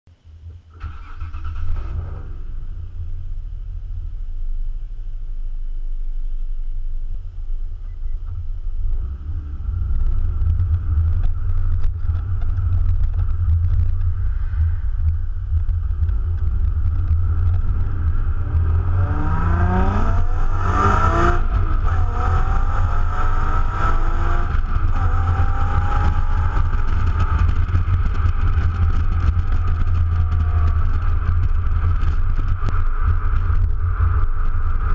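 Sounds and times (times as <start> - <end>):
car engine through exhaust: 0.2 - 34.9.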